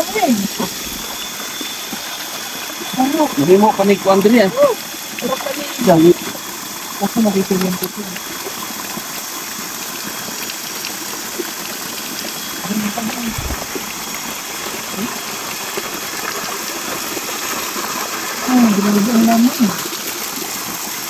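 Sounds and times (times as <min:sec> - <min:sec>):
water pouring from hose splashing: 0:00.0 - 0:21.0
low thump: 0:13.3 - 0:14.0.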